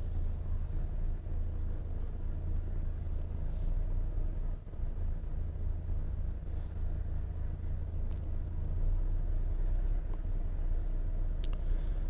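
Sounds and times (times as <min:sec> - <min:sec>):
truck engine and road rumble: 0:00.0 - 0:12.0
faint ticks: 0:11.4 - 0:11.6.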